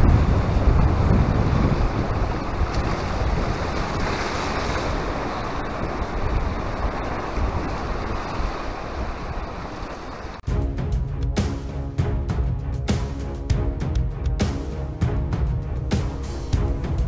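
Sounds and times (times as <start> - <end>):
waves washing onto stony shore: 0.0 - 10.4
wind buffeting microphone: 0.0 - 10.4.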